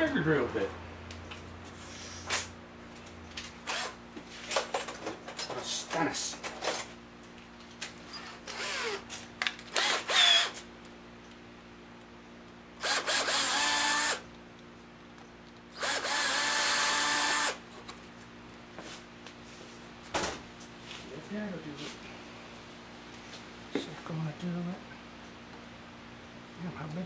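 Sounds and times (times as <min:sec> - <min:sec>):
electric drill whining: 0:03.6 - 0:04.0, 0:08.2 - 0:09.1, 0:09.7 - 0:10.6, 0:12.8 - 0:14.2, 0:15.8 - 0:17.6.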